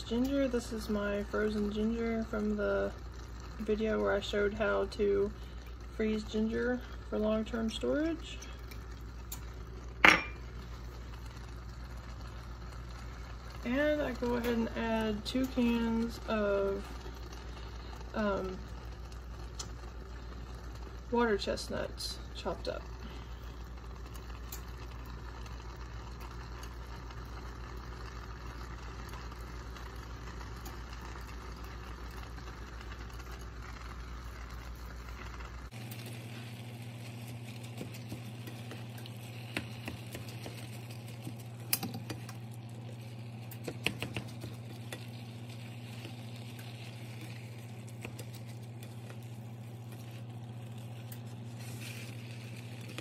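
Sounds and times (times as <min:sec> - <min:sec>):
food sizzling in a skillet: 0:00.0 - 0:53.0
steady low hum: 0:00.0 - 0:53.0
spoon stirring and scraping: 0:35.9 - 0:53.0.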